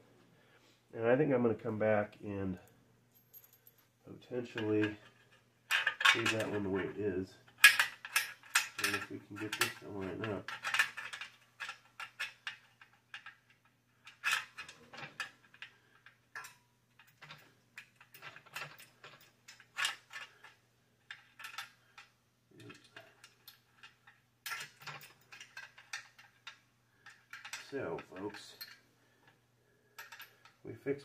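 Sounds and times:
metallic clicks and clinks: 3.1 - 3.9, 7.5 - 30.6.

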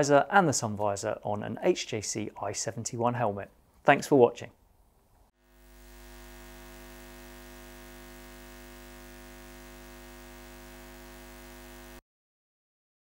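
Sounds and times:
electronic drone: 5.4 - 12.0
faint hiss: 5.4 - 12.0.

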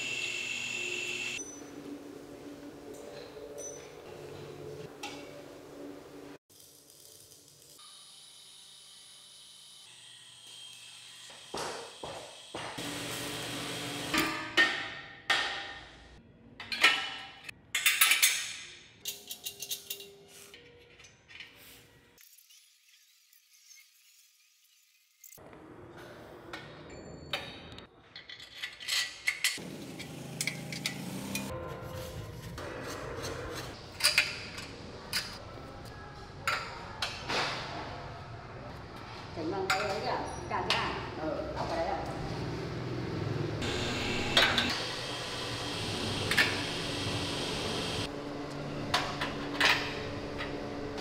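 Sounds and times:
metal tools clinking: 17.8 - 21.6.

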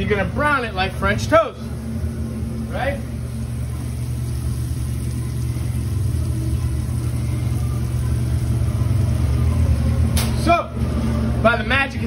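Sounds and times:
low mechanical rumble: 0.0 - 12.0
faint frying sizzle: 1.8 - 10.2.

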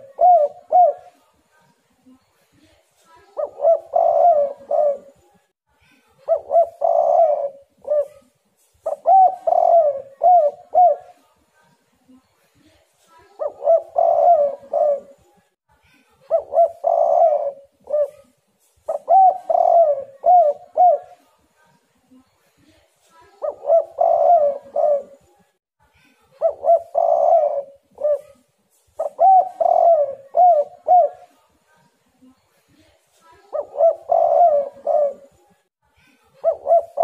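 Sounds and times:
dove cooing: 0.0 - 1.2, 3.4 - 5.2, 6.3 - 11.2, 13.4 - 15.3, 16.3 - 21.2, 23.4 - 25.3, 26.4 - 28.4, 29.0 - 31.4, 33.5 - 35.4, 36.4 - 37.0.

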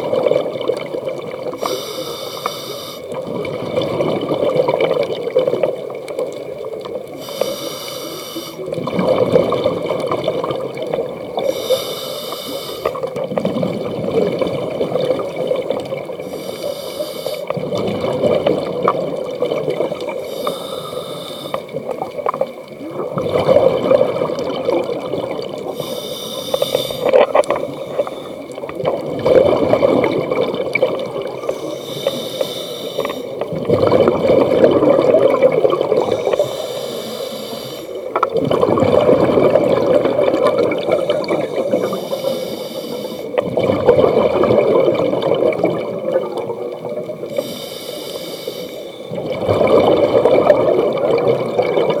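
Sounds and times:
gurgling exhaled bubbles: 0.0 - 47.6, 48.9 - 52.0
regulator hissing inhale: 1.5 - 3.2, 7.2 - 8.8, 11.4 - 13.1, 16.2 - 17.6, 20.2 - 21.8, 25.7 - 28.6, 31.4 - 33.4, 36.0 - 38.1, 40.8 - 43.4, 47.2 - 49.1.

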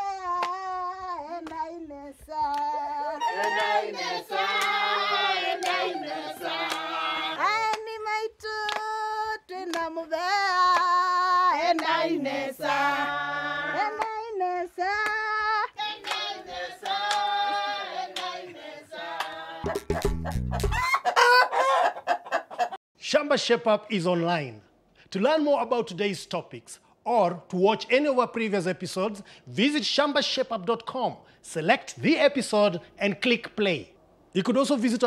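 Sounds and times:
hand clapping: 1.4 - 1.7, 2.5 - 2.8, 3.4 - 3.8, 4.5 - 4.8, 5.6 - 5.9, 6.6 - 6.9, 7.6 - 7.9, 8.6 - 9.0, 9.7 - 9.9, 10.7 - 11.0, 11.7 - 12.0, 14.0 - 14.2, 15.0 - 15.3, 16.0 - 17.6, 18.2 - 18.4
group singing together: 2.4 - 7.7, 10.8 - 20.0.

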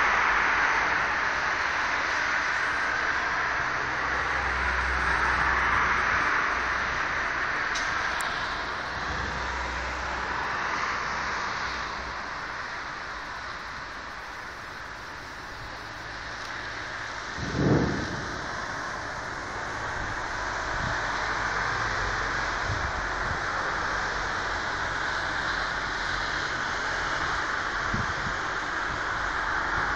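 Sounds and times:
storm wind rushing through trees: 0.0 - 29.9
wind buffeting microphone: 17.2 - 21.8, 22.5 - 23.5, 27.2 - 29.9.

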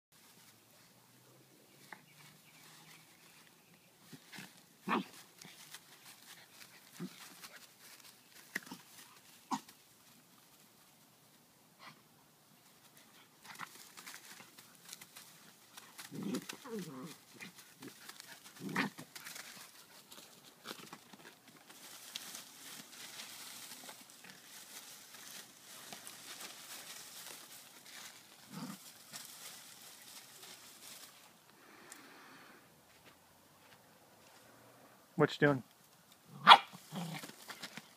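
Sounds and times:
dog rustling in dry grass: 1.8 - 11.3, 12.6 - 31.5.

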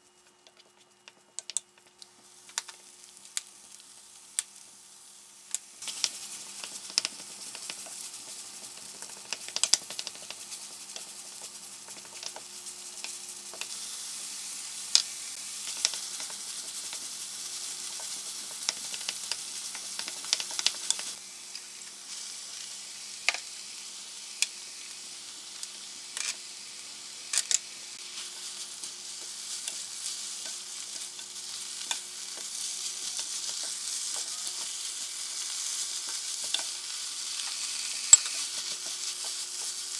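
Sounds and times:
meat sizzling in a wok: 0.2 - 39.9
spatula scraping and tapping pan: 30.4 - 36.8.

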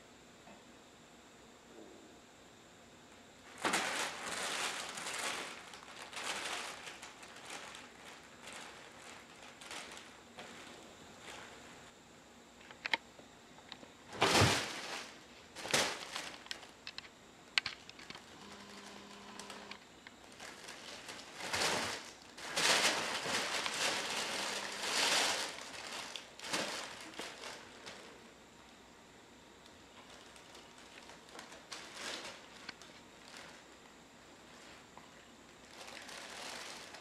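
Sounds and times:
cat rustling and scrambling: 14.1 - 16.4, 20.4 - 28.0.

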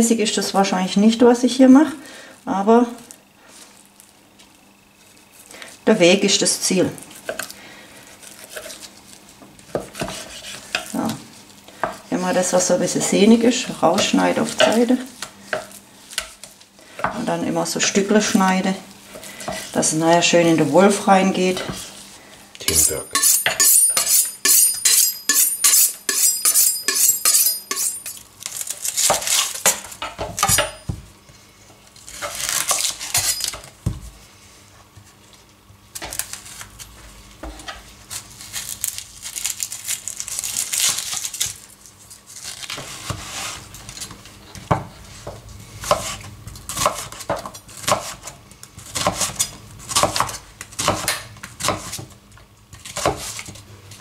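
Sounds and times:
knife on sharpening steel: 22.7 - 28.2
knife chopping on wooden board: 46.8 - 48.2.

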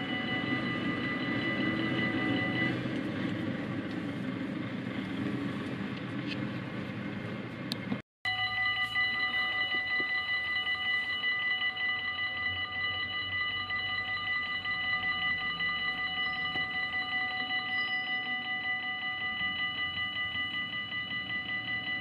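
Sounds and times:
level crossing warning bells ringing: 0.0 - 5.1, 8.2 - 22.0.

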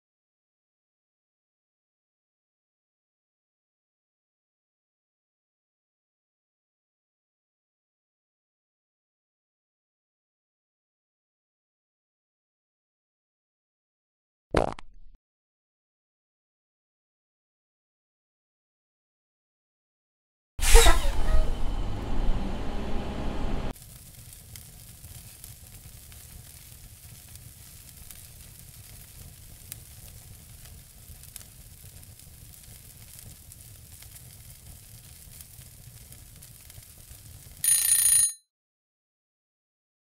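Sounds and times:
loud low noise: 20.7 - 23.7
small bell ding: 37.6 - 38.4.

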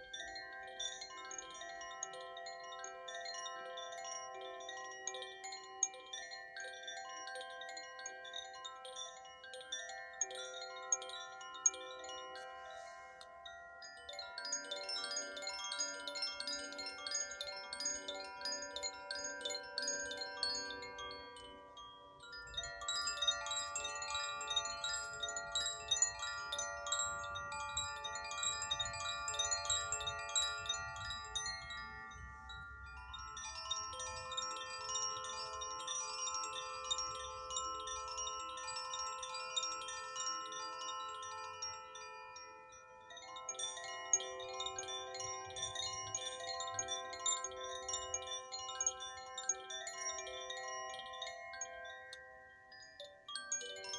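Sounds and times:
wind chimes tinkling: 0.0 - 53.9.

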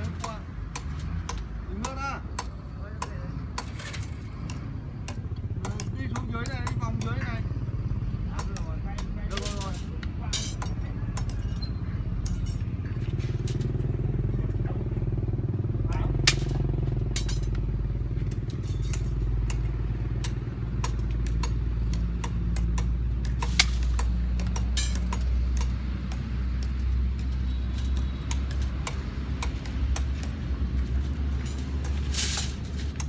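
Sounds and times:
wire clinking and rattling: 3.6 - 4.6, 9.3 - 13.9, 15.9 - 33.0.

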